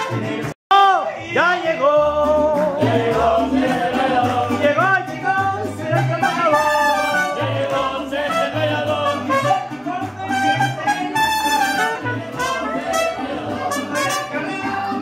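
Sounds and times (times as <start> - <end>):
trumpets: 0.0 - 0.5, 5.9 - 14.9
man singing into microphone: 0.0 - 11.8, 12.4 - 15.0
bass line: 0.0 - 15.0.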